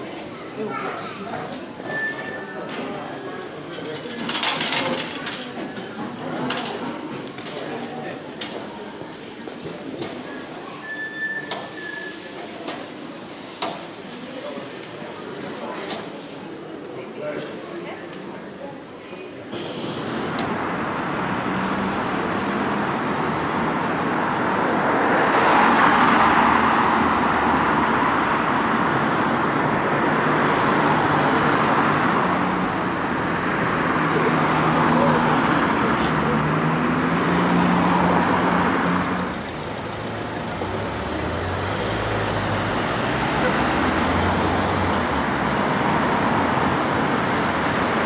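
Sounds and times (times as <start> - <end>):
cars driving past: 19.5 - 48.0.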